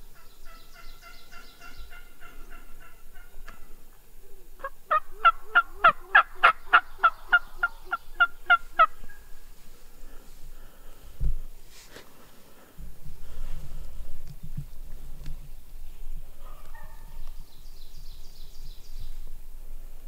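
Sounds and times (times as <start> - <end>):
turkey calling: 0.0 - 9.9.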